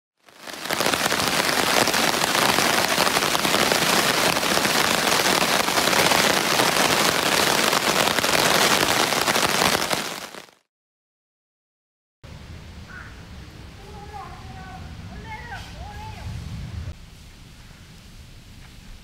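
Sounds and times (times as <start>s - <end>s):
rain falling steadily: 0.2s - 10.6s, 12.3s - 19.0s.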